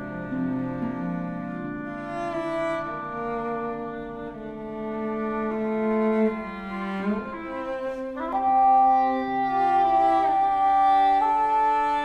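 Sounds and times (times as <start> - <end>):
harp: 0.0 - 12.0
long bowed cello notes: 0.0 - 12.0
oboe: 0.0 - 12.0.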